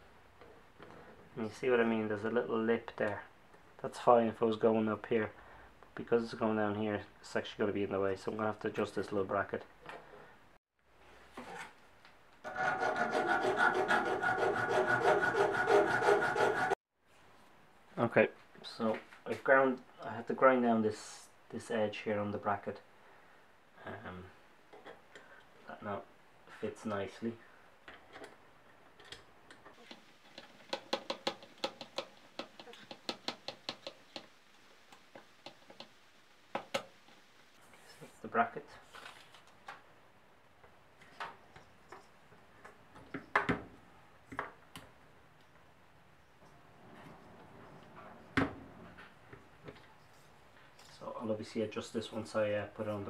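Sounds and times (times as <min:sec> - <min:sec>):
hand file scraping metal: 0:12.5 - 0:16.8.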